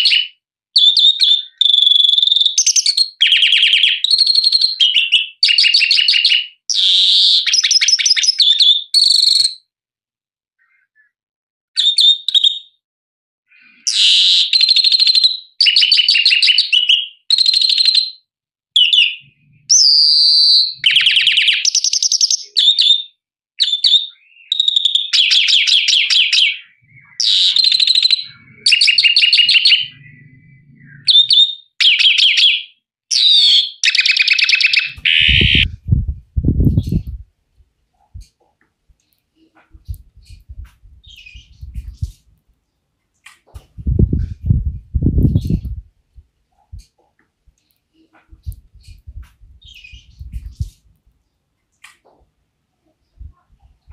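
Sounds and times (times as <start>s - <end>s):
finch singing twittering phrases: 0.0s - 9.5s, 18.8s - 35.9s, 36.6s - 37.2s, 39.0s - 42.3s, 43.5s - 45.8s, 47.9s - 50.9s.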